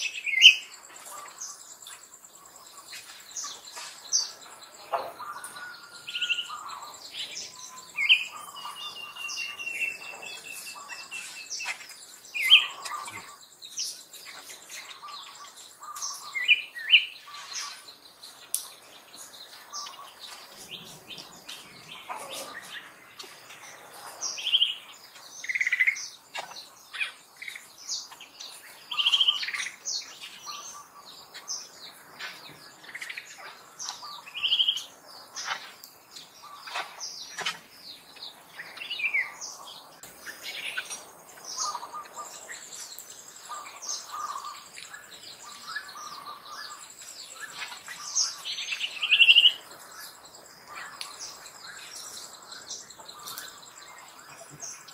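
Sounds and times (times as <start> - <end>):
birds chirping and calling: 0.0 - 54.9.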